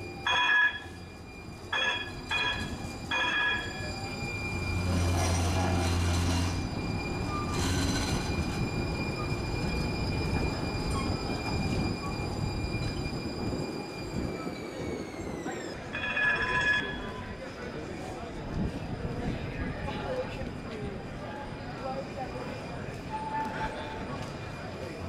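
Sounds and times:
streetcar rumbling on rails: 0:00.0 - 0:25.0.

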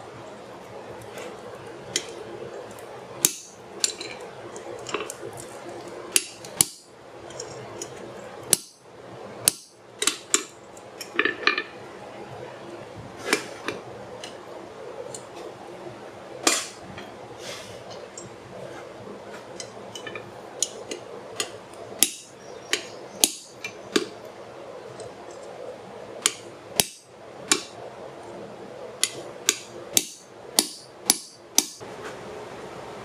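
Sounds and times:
steady background noise: 0:00.0 - 0:33.0
hammer striking metal: 0:03.2 - 0:03.6, 0:06.2 - 0:06.9, 0:08.5 - 0:08.8, 0:16.4 - 0:16.8, 0:21.4 - 0:24.1, 0:26.2 - 0:27.7, 0:29.0 - 0:31.8.

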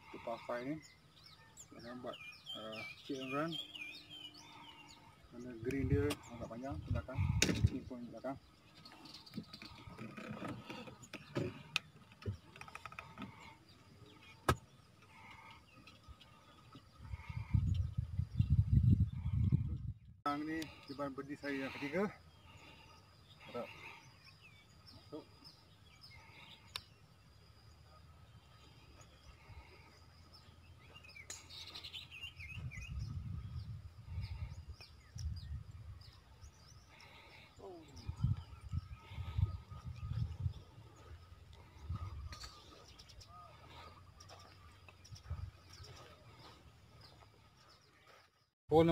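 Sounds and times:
small birds chirping: 0:00.0 - 0:48.9
wind rumble on microphone: 0:05.6 - 0:07.9, 0:16.9 - 0:20.2, 0:32.4 - 0:36.8, 0:37.8 - 0:44.3, 0:45.0 - 0:46.4.

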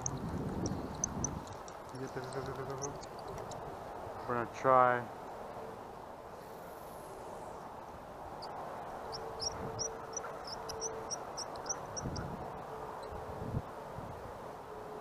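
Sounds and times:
bird chirping: 0:00.0 - 0:03.7, 0:08.4 - 0:12.4
outdoor background noise: 0:00.0 - 0:15.0.

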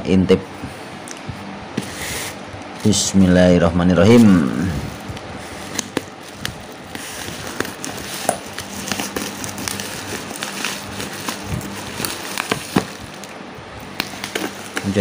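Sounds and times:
plastic crinkling: 0:04.0 - 0:15.0.

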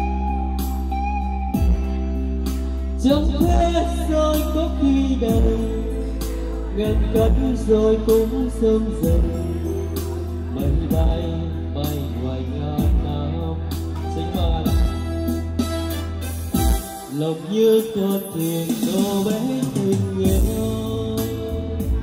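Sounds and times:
backing music with a beat: 0:00.0 - 0:22.0
man singing into microphone: 0:03.0 - 0:15.6, 0:16.5 - 0:22.0.

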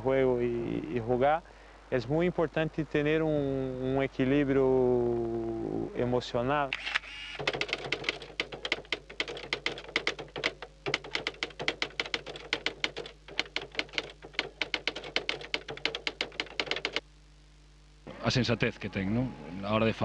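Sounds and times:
typewriter key clacks: 0:07.4 - 0:17.0.

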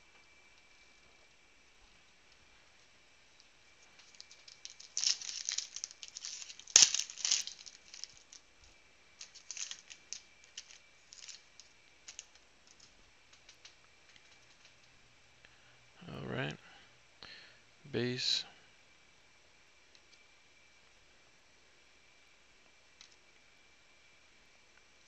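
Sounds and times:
cards being handled: 0:03.9 - 0:08.4, 0:09.2 - 0:14.8
foil wrapper tearing and crinkling: 0:04.0 - 0:08.4, 0:09.2 - 0:13.6.

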